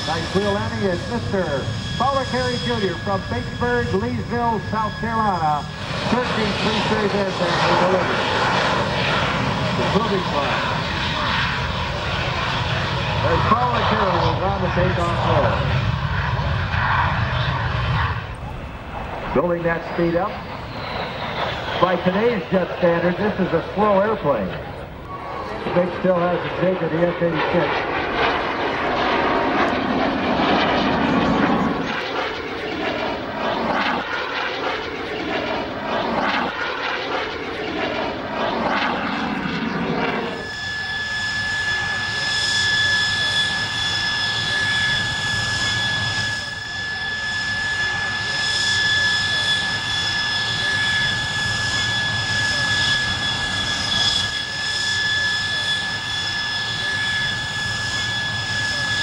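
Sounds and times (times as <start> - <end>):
jet turbine whine: 0.0 - 59.0
passing jet roar: 0.0 - 59.0.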